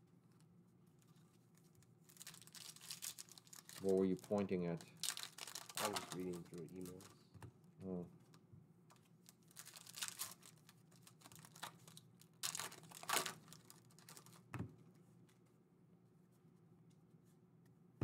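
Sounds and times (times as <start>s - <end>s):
foil wrapper tearing and crinkling: 2.1s - 7.2s, 9.2s - 14.5s.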